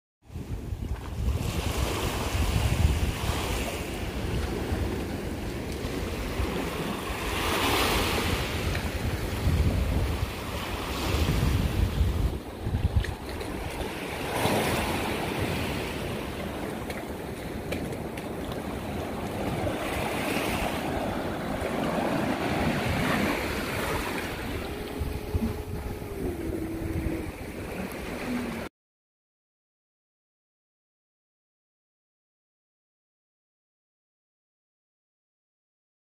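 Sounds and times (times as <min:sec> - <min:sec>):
wind buffeting microphone: 0:00.3 - 0:28.7
waves lapping against seawall: 0:00.5 - 0:28.7
faint held tone: 0:20.9 - 0:28.7.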